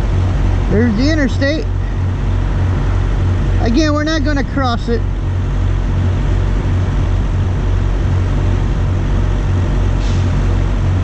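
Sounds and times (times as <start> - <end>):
road vehicles rumbling: 0.0 - 11.0
brief hiss: 10.0 - 10.4.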